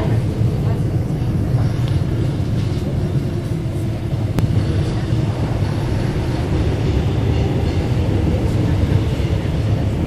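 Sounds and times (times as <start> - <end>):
subway train rumbling: 0.0 - 10.0.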